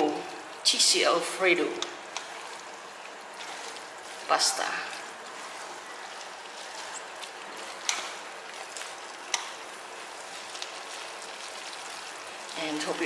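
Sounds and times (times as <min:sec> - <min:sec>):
spaghetti sizzling in a pan: 0:00.0 - 0:13.0
fork clicking against pan: 0:07.8 - 0:08.1, 0:09.3 - 0:09.6.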